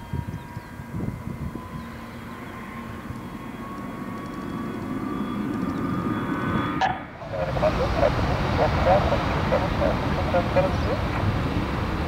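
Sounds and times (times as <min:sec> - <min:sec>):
jet engines whining: 0:00.0 - 0:12.0
low engine rumble: 0:00.0 - 0:12.0.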